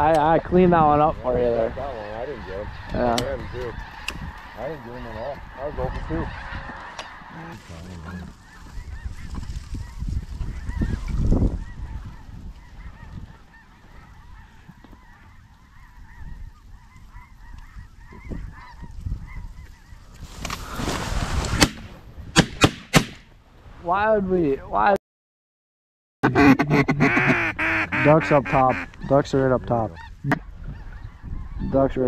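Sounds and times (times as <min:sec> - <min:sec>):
wind rumbling on microphone: 0:00.0 - 0:22.7, 0:27.3 - 0:32.0
geese honking: 0:00.2 - 0:20.2, 0:26.3 - 0:32.0
sharp cracks: 0:21.4 - 0:23.3.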